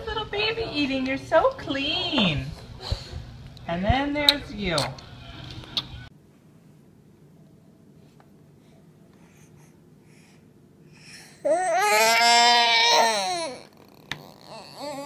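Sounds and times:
baby crying: 11.4s - 15.0s.

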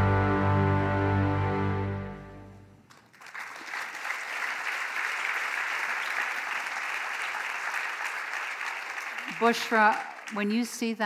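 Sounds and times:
large crowd clapping: 2.8s - 11.0s.

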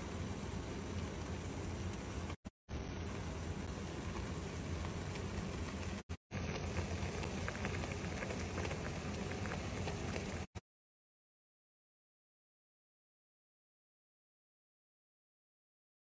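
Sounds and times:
water boiling in a saucepan: 0.0s - 10.6s.

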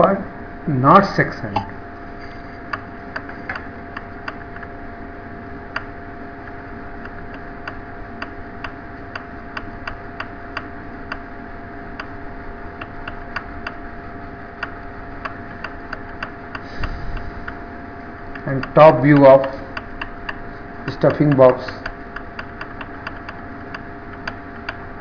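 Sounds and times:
steady electrical hum: 0.0s - 25.0s
computer mouse clicking: 14.6s - 17.6s, 21.0s - 24.9s.

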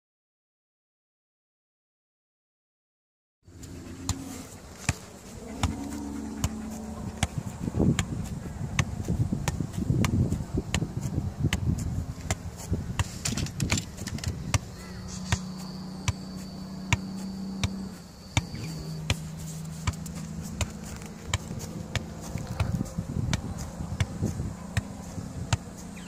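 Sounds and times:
low hum: 3.5s - 10.6s, 11.3s - 26.0s
football kicked thuds: 7.2s - 14.7s, 18.4s - 25.8s.

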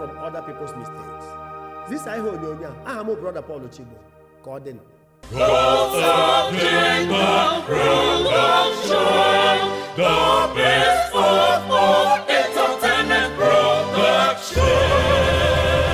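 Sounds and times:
choir singing in harmony: 5.2s - 15.9s.

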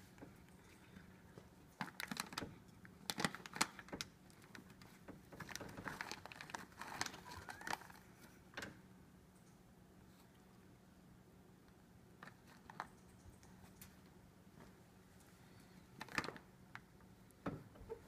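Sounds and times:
plastic bag crinkling: 1.7s - 8.3s, 16.0s - 16.5s.

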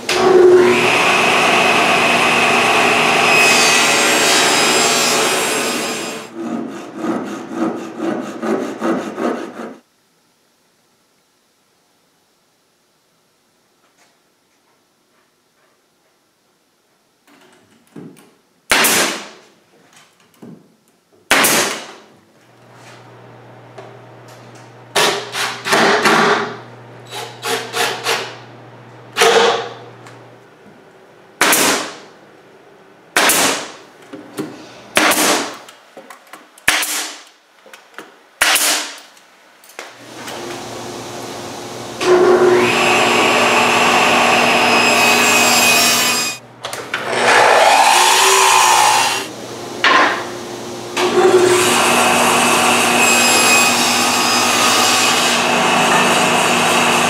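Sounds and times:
table saw cutting plywood: 0.0s - 9.8s, 25.0s - 28.4s, 40.0s - 46.4s, 47.0s - 57.0s
pneumatic nailer firing: 18.7s - 19.4s, 21.3s - 22.0s, 24.9s - 28.4s, 29.2s - 29.8s, 31.4s - 32.0s, 33.2s - 33.8s, 34.9s - 35.7s, 36.6s - 37.3s, 38.4s - 39.1s.

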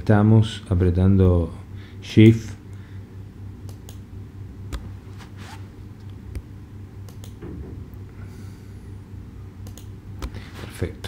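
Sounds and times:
steady low hum: 0.0s - 11.0s
computer mouse clicks: 7.1s - 7.4s, 9.6s - 10.4s.

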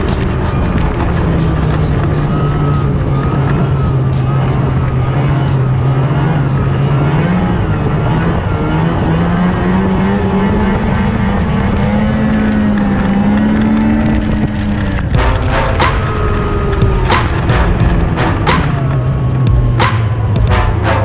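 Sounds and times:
snowmobile engine running: 0.0s - 21.0s.

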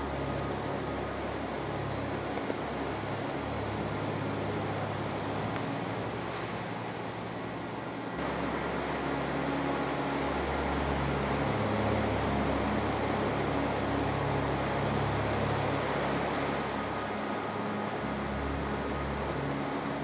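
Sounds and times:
low sustained drone: 0.0s - 20.0s.

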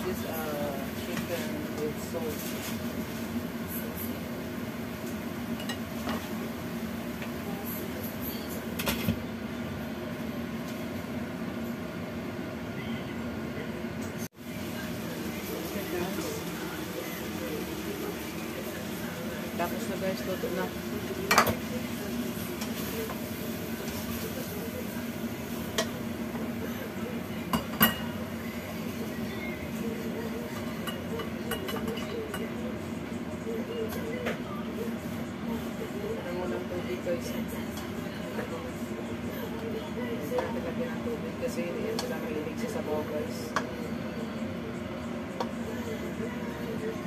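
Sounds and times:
chicken sizzling in a wok: 0.0s - 33.6s.

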